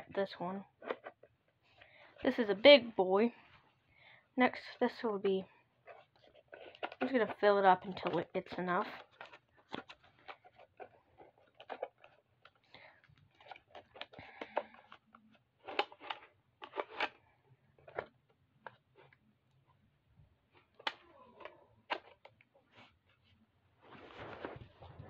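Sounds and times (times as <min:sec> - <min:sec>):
plastic rattling: 0:05.8 - 0:12.6.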